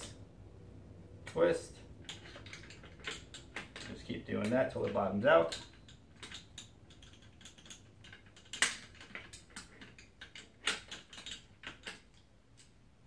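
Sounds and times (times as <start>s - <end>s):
loud metal clicks: 2.0s - 12.7s.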